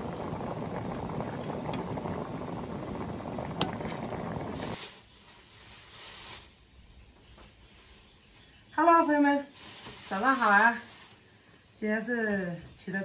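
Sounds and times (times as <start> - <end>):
pot boiling hard: 0.0 - 5.6, 9.6 - 11.2.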